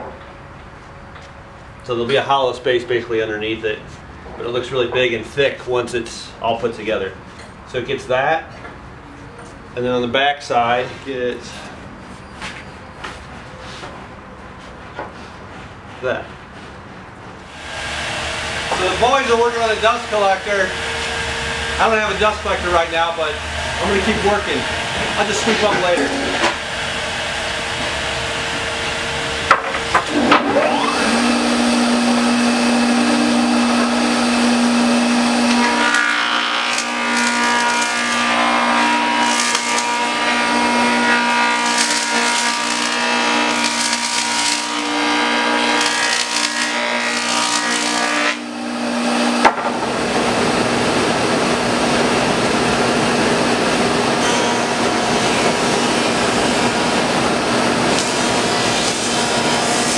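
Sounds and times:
jointer planing wood: 17.5 - 59.9.

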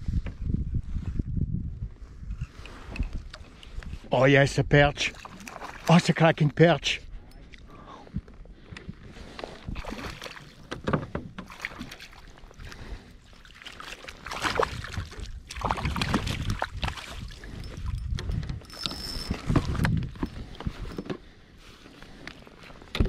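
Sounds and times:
fish splashing in water: 5.2 - 5.9, 9.7 - 10.6, 11.4 - 17.4.

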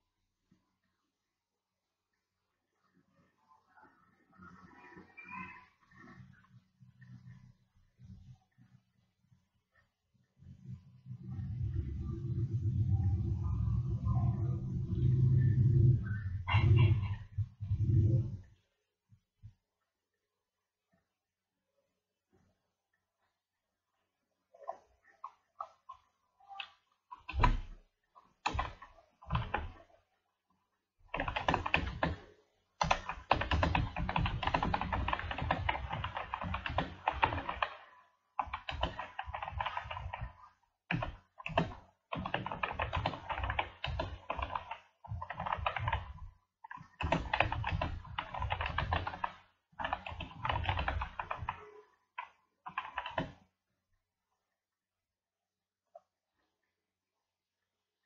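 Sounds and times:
computer keyboard typing: 28.4 - 29.8, 31.1 - 53.4.

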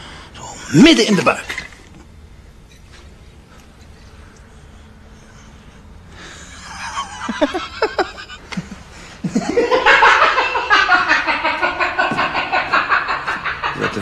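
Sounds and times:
man laughing: 6.3 - 14.0.

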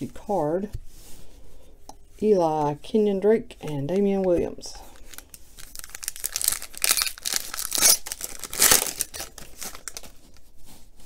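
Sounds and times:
plastic wrapper tearing and crinkling: 4.8 - 10.5.

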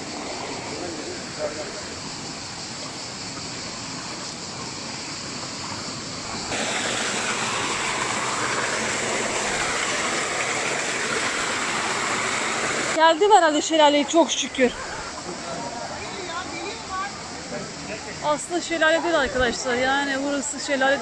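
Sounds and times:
stream rushing over boulders: 0.0 - 21.0.

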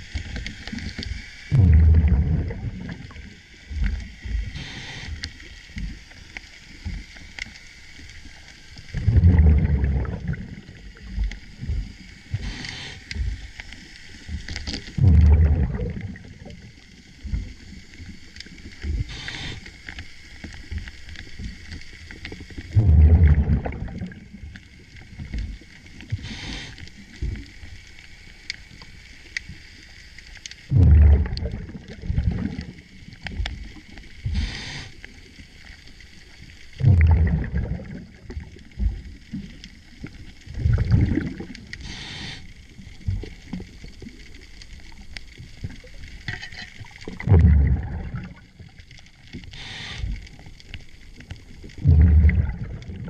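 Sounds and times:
exhaled bubbles rumbling underwater: 0.0 - 53.0
regulator inhalation hiss: 4.0 - 5.9, 11.0 - 14.5, 19.0 - 20.5, 26.1 - 27.2, 34.2 - 35.4, 41.8 - 42.9, 49.4 - 50.5.

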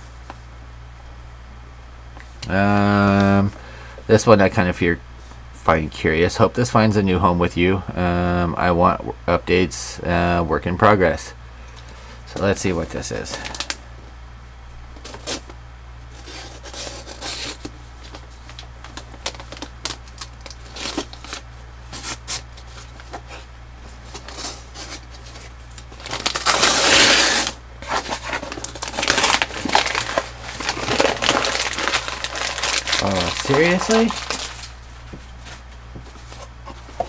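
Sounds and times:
packaging crinkling: 12.9 - 13.8, 16.1 - 37.0
packaging tearing and rustling: 13.0 - 13.8, 15.0 - 15.5, 16.1 - 37.0.

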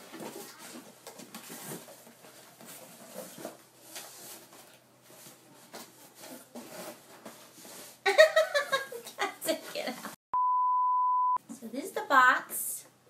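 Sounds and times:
cardboard box rustling and scraping: 0.0 - 8.0.

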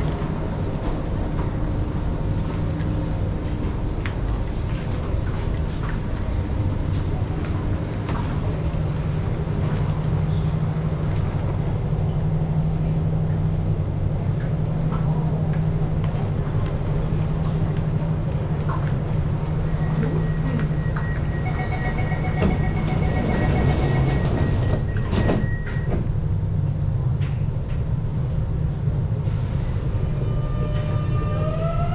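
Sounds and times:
train low hum: 0.0 - 31.9
steady warning tone: 19.6 - 26.0
rapid door-closing beeps: 19.8 - 26.0
train doors sliding shut: 22.0 - 26.2.

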